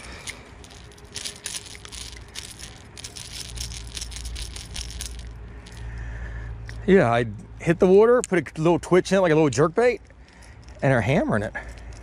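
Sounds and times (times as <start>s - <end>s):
fishing lure hooks rattling: 0.0s - 6.0s, 10.0s - 12.0s.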